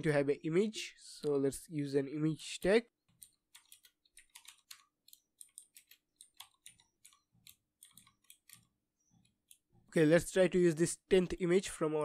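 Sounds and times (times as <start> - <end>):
computer keyboard typing: 3.0 - 9.7.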